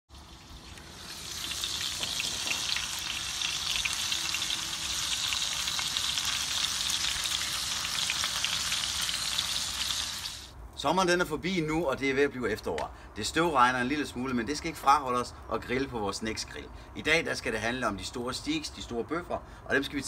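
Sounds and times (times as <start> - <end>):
steaks sizzling in hot fat: 0.1 - 10.5.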